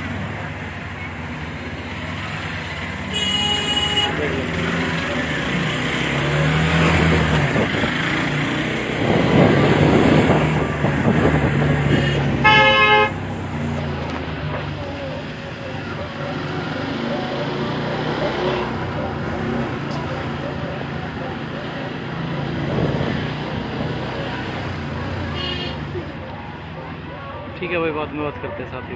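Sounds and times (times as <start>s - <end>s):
vehicle horn honk: 3.1s - 4.3s, 11.9s - 13.2s, 25.4s - 25.8s.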